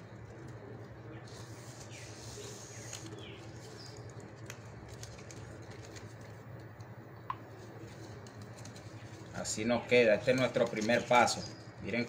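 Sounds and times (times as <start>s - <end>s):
palm leaf rustling and clicking: 0.0s - 12.0s
bird chirps: 1.2s - 4.1s.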